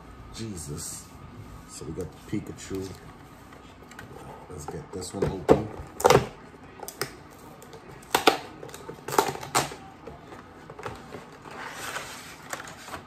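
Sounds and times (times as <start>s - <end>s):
card and plastic crackles: 6.0s - 13.0s.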